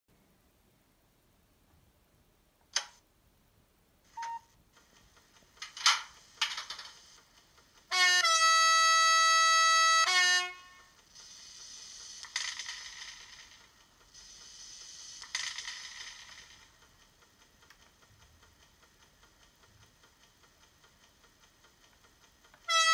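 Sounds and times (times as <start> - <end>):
soft steady hiss: 0.1 - 8.1, 8.8 - 22.8
model locomotive horn: 7.9 - 11.0, 22.6 - 22.9.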